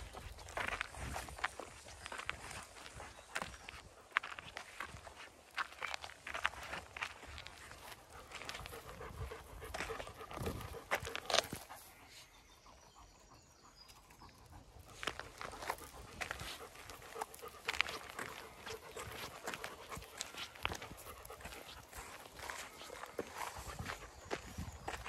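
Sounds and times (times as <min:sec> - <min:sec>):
footsteps on gravel: 0:00.0 - 0:11.8, 0:14.8 - 0:25.0
dog panting: 0:06.4 - 0:25.0.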